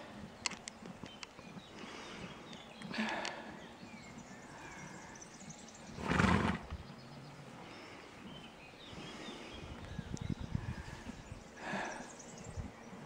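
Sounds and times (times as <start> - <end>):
hooves shifting on dirt: 0.0 - 13.0
horse snorting: 5.9 - 6.8.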